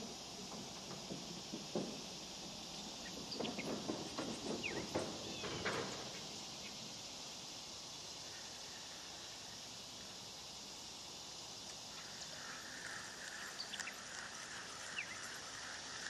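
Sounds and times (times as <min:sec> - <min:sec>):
high-pitched insect chorus: 0:00.0 - 0:16.0
light clicks and knocks: 0:00.3 - 0:06.4.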